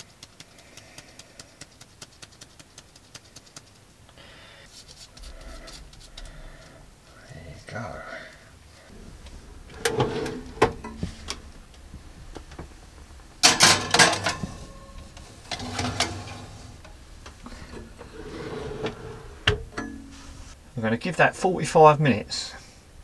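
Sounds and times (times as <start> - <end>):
baking tray scraping on metal rack: 9.5 - 11.3, 13.4 - 16.8, 17.8 - 19.5.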